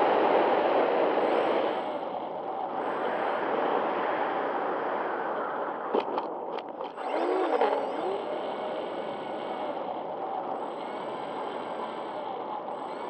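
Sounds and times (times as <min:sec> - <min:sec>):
electric motors spinning propellers: 0:06.0 - 0:13.0
wavering pitched tone: 0:07.0 - 0:08.3.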